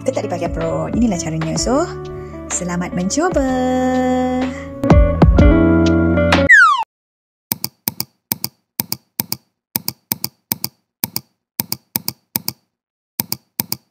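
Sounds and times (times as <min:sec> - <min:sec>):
short dry clicks in pairs: 0:07.5 - 0:12.6, 0:13.2 - 0:13.9.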